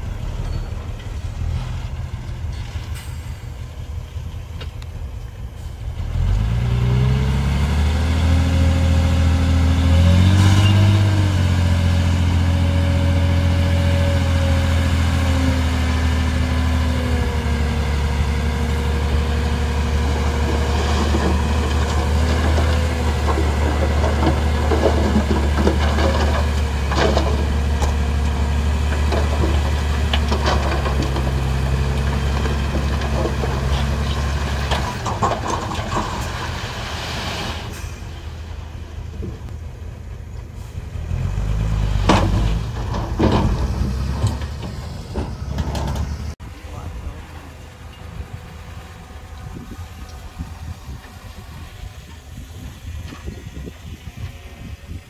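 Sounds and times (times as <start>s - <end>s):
diesel engine revving: 0.0s - 55.0s.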